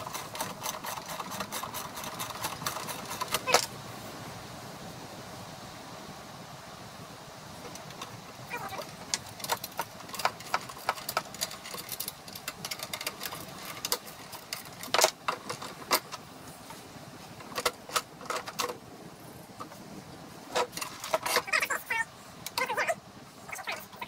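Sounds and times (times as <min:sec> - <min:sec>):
metal clicks and clanks: 0:00.0 - 0:03.7, 0:07.7 - 0:16.2, 0:17.4 - 0:18.8, 0:20.5 - 0:21.5.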